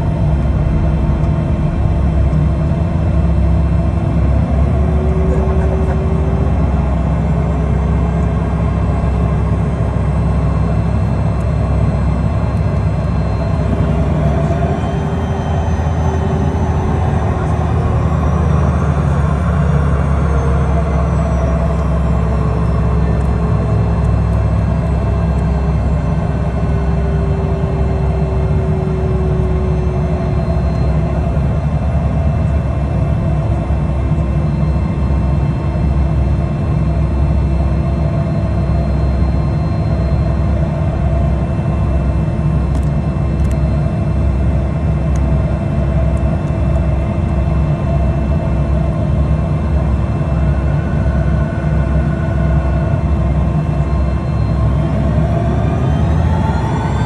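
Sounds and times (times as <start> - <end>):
engine tone sliding down in pitch: 0.0 - 57.0
jet engines running at low power: 0.0 - 57.0
low rumble: 0.0 - 57.0.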